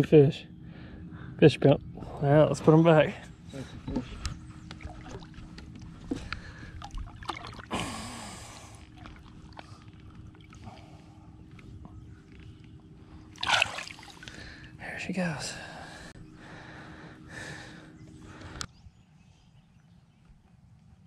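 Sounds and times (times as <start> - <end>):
faint steady hum: 0.0 - 21.0
water sloshing and splashing: 3.9 - 11.0, 13.3 - 14.8.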